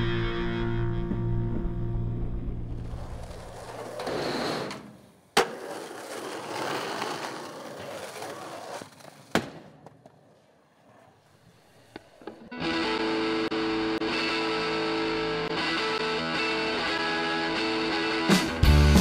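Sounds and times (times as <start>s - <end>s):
skateboard wheels rolling on pavement: 0.9s - 18.9s
skateboard clacks: 2.8s - 12.6s.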